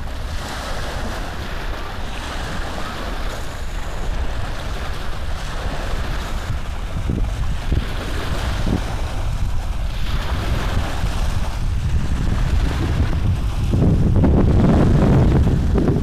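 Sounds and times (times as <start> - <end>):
low rumbling noise: 3.6 - 16.0.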